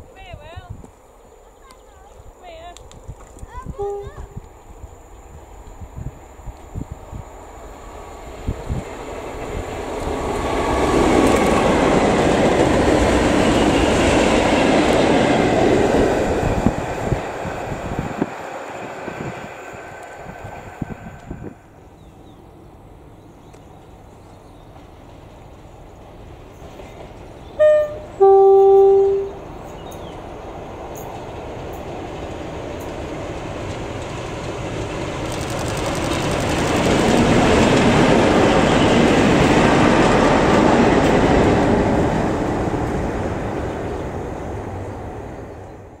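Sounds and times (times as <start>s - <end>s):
diesel locomotive engine passing: 0.0s - 46.0s
diesel locomotive two-tone horn: 3.8s - 4.4s, 27.5s - 29.4s.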